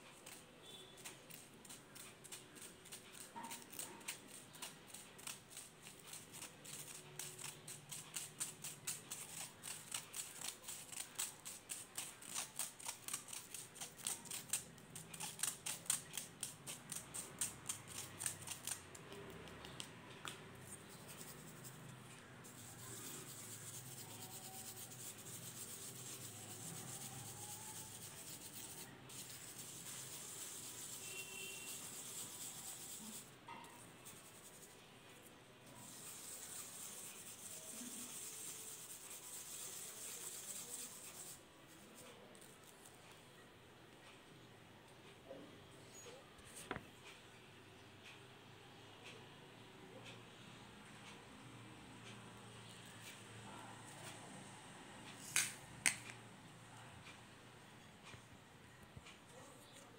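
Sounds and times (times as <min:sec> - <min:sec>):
mothballs being crushed and rubbed: 0:00.2 - 0:33.3, 0:35.8 - 0:41.4.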